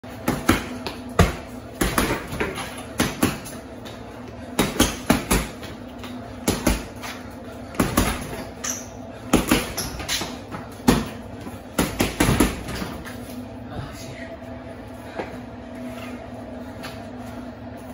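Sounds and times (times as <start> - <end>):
punches thudding on heavy bag: 0.2 - 3.5, 6.4 - 7.0, 7.8 - 8.5, 9.3 - 12.8.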